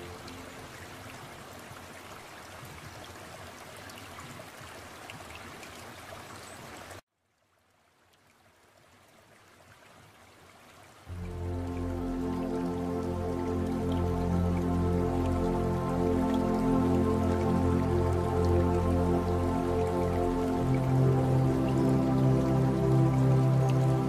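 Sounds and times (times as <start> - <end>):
music: 0.0 - 1.0, 11.1 - 24.0
running water: 0.0 - 24.0.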